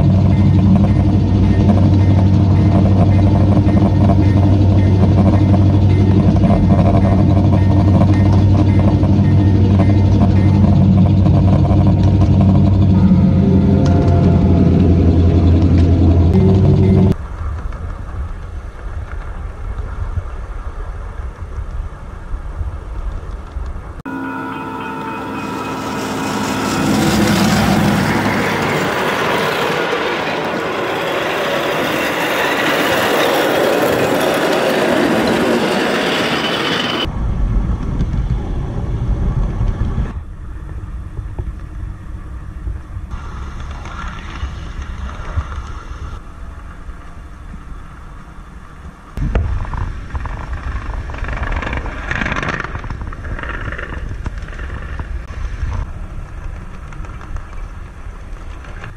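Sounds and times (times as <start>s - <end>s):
rumble and clatter of wheels: 0.0s - 24.2s, 25.7s - 58.9s
miniature train wheels on rails: 28.4s - 37.1s, 49.5s - 58.9s.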